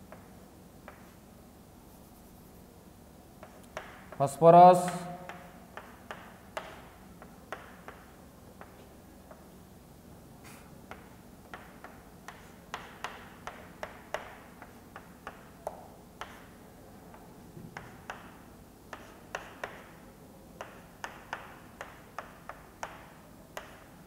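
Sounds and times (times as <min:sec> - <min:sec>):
chalk tapping on blackboard: 0:00.0 - 0:01.2, 0:03.4 - 0:04.2, 0:04.8 - 0:09.5, 0:10.8 - 0:16.6, 0:17.6 - 0:20.0, 0:20.6 - 0:24.0
chalk scratching strokes: 0:01.8 - 0:02.7, 0:18.9 - 0:20.0.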